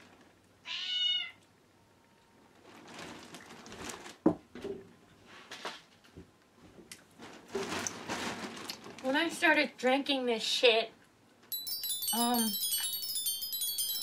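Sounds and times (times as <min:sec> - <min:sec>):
cat meowing: 0:00.6 - 0:01.4
rustling and handling noises: 0:02.6 - 0:04.2, 0:05.2 - 0:09.4.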